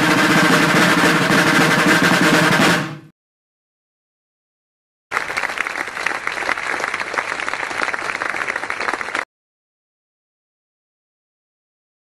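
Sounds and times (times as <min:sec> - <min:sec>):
applause: 0:05.1 - 0:09.3.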